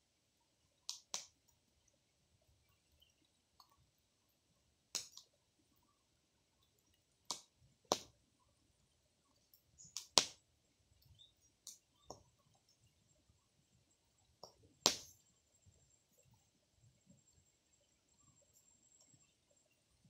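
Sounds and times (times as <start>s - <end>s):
fire crackling: 0.8s - 1.4s, 4.8s - 5.9s, 6.9s - 8.2s, 9.3s - 12.5s, 14.4s - 15.2s
sharp pops: 0.9s - 1.3s, 4.9s - 5.3s, 7.3s - 8.1s, 9.8s - 10.4s, 14.4s - 15.2s.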